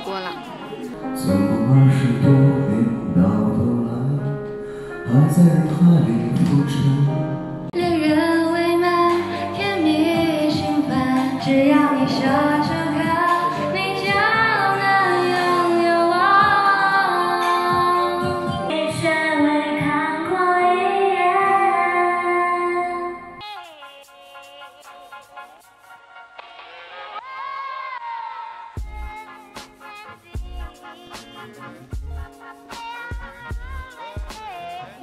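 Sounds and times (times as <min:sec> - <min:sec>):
woman singing a song: 0:07.8 - 0:23.4, 0:32.8 - 0:35.0.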